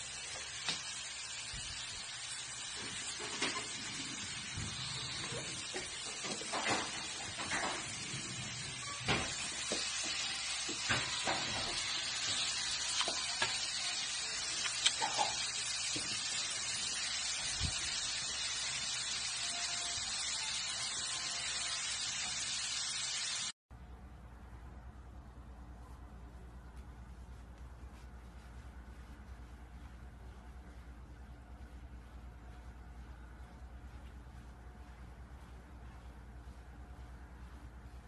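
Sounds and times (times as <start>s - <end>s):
steady hiss: 0.0s - 23.6s
low hum: 23.7s - 38.0s.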